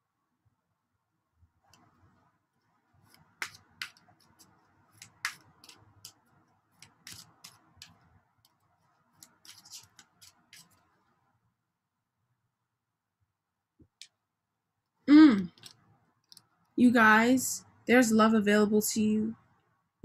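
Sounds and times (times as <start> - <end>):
cards rustling: 3.0 - 11.0.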